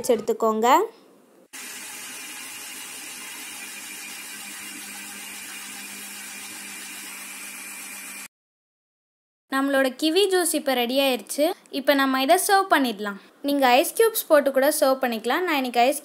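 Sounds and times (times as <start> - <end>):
electric mixer grinder running: 1.6 - 8.3.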